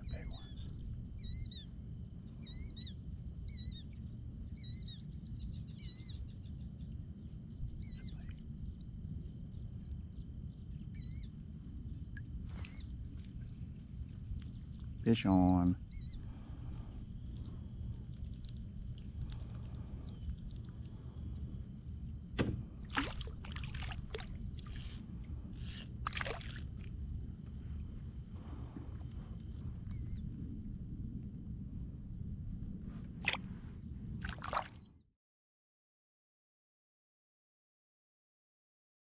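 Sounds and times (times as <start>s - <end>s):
steady low rumble: 0.0s - 34.2s
fish splashing and knocking: 22.4s - 24.9s, 26.0s - 26.9s, 33.2s - 33.4s, 34.2s - 34.8s
water sloshing against kayak: 22.4s - 29.2s, 33.2s - 33.6s, 34.2s - 34.8s.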